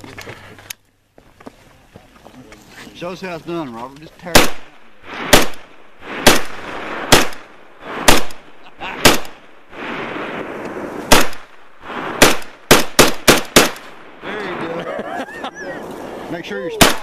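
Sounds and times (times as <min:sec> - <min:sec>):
rifle shots with echo: 0:04.3 - 0:14.3, 0:16.8 - 0:17.0.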